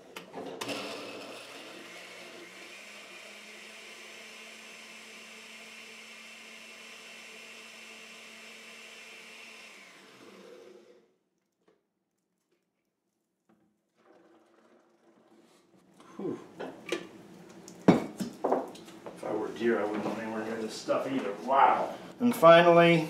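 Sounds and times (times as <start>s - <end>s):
blender running: 0.6s - 11.2s.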